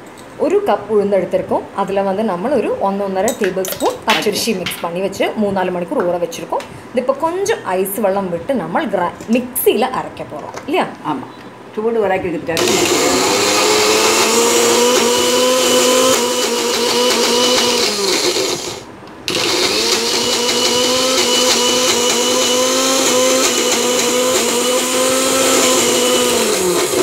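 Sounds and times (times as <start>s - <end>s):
mixer grinder running: 12.6s - 27.0s.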